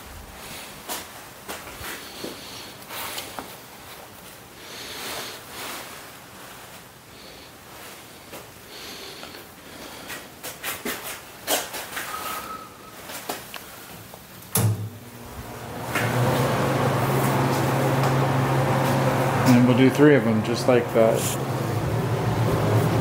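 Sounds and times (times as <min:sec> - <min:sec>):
gloves rustling: 0:00.3 - 0:12.4.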